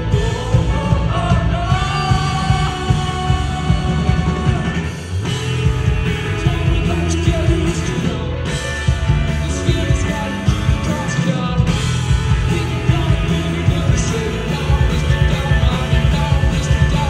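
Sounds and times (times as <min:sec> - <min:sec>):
person singing: 0:00.0 - 0:05.0, 0:09.3 - 0:17.0
rock band playing live: 0:00.0 - 0:17.0.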